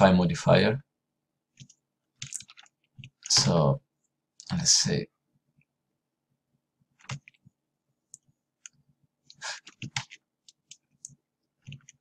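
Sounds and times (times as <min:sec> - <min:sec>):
mouse and keyboard clicks: 0:01.6 - 0:03.5, 0:07.0 - 0:07.4, 0:09.6 - 0:12.0.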